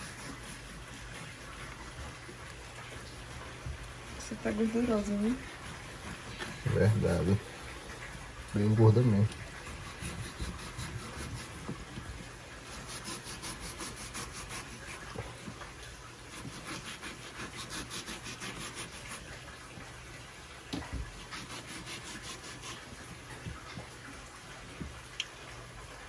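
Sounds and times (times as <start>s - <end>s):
knife sawing through meat: 0.0s - 2.0s, 9.6s - 11.6s, 12.6s - 15.2s, 16.3s - 19.4s, 21.2s - 22.9s.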